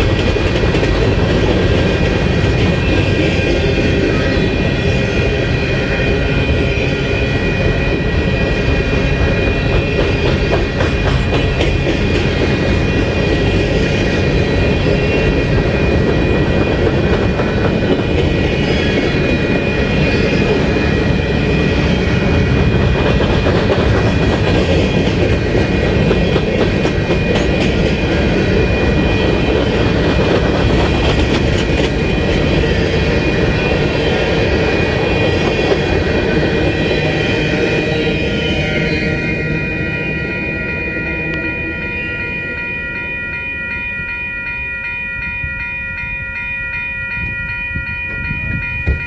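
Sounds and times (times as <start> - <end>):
clickety-clack over rail joints: 0.0 - 4.1, 8.9 - 33.0, 48.1 - 49.0
high ringing from train wheels: 0.0 - 49.0
steel wheels rumbling on rail: 0.0 - 49.0.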